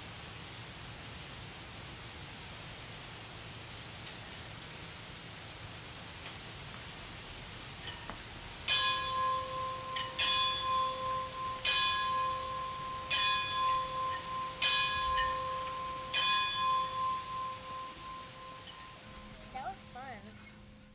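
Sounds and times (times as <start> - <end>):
large bell tolling: 8.7 - 20.8.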